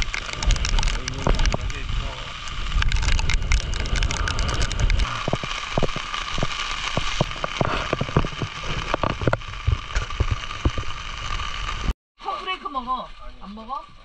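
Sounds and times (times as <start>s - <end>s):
wind buffeting microphone: 0.0s - 6.0s
heavy rain drops tapping: 0.0s - 11.9s.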